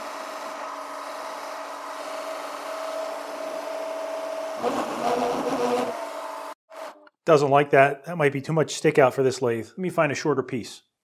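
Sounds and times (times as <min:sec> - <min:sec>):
lathe drive whining: 0:00.0 - 0:06.6.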